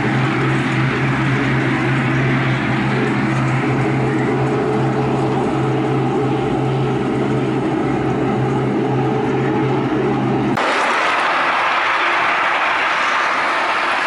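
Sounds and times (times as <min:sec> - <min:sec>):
wheels rolling on rails: 0:10.5 - 0:14.0
model train motor hum: 0:10.6 - 0:14.0.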